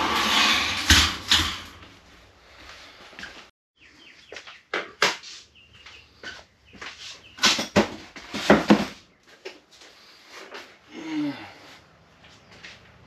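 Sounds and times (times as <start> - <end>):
bird chirps: 3.8 - 4.7, 5.3 - 7.4.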